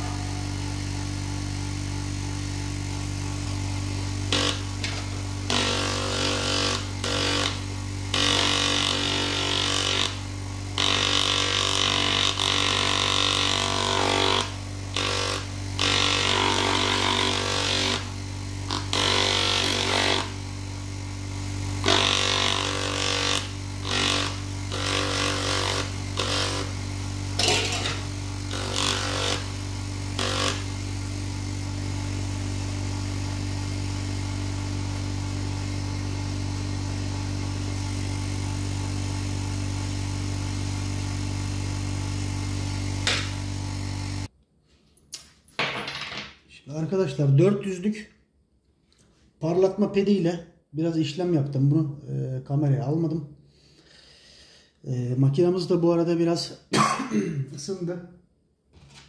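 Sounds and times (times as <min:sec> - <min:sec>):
small electric motor humming: 0:00.0 - 0:44.3
stone grinding on polishing pad: 0:04.3 - 0:07.6, 0:08.2 - 0:10.2, 0:21.8 - 0:26.7, 0:27.4 - 0:29.5, 0:30.2 - 0:30.7.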